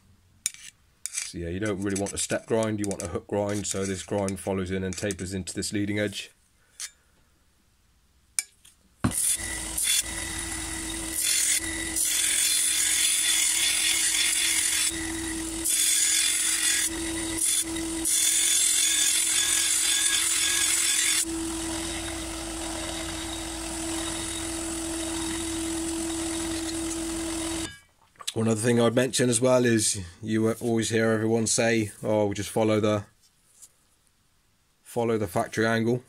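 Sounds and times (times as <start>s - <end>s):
belt sander motor humming: 9.1s - 27.7s
metal blade grinding on sanding belt: 9.1s - 27.8s.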